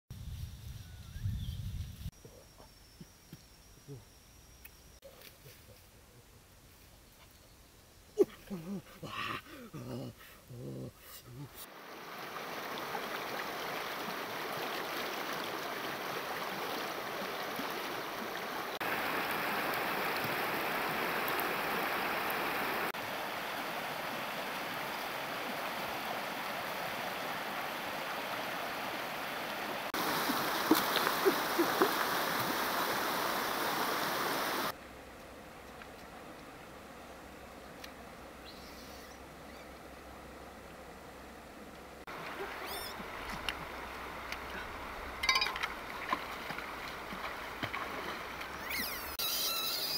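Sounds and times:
river rushing over rocks: 0:11.7 - 0:34.7
sharp knocks or splashes: 0:30.0 - 0:32.5.

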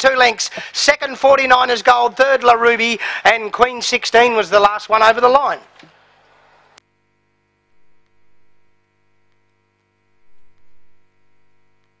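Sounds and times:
electrical mains hum and buzz: 0:00.0 - 0:12.0
click: 0:09.3 - 0:09.9, 0:11.8 - 0:12.0.

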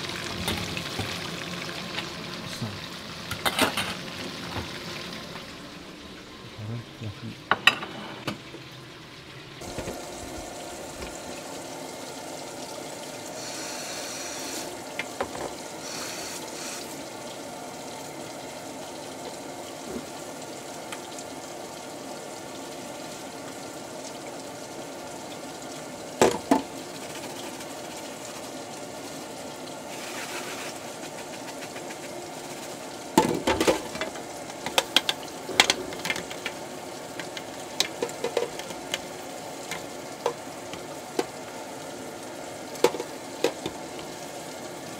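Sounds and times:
dishes knocking and clattering: 0:00.4 - 0:01.2, 0:03.3 - 0:04.8, 0:07.5 - 0:08.5, 0:15.0 - 0:15.6, 0:26.2 - 0:26.7, 0:33.2 - 0:36.6, 0:37.2 - 0:39.0, 0:42.8 - 0:43.8
tap running into metal sink: 0:09.6 - 0:11.2, 0:26.2 - 0:26.7, 0:42.8 - 0:44.1.

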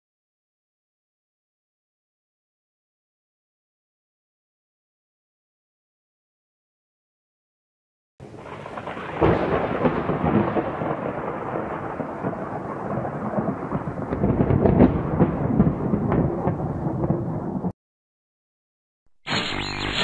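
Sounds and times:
rolling thunder rumble: 0:08.2 - 0:17.7
thunder crack: 0:08.3 - 0:17.8.

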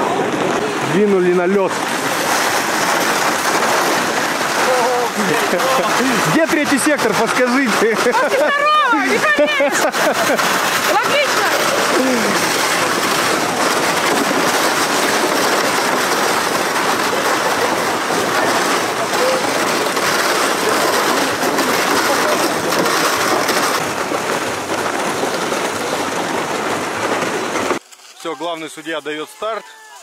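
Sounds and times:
faint voices: 0:16.9 - 0:23.0.

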